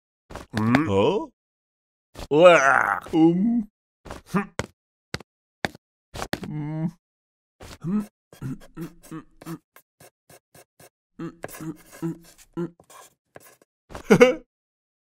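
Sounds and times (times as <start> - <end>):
quill pen scratching: 7.6 - 14.0.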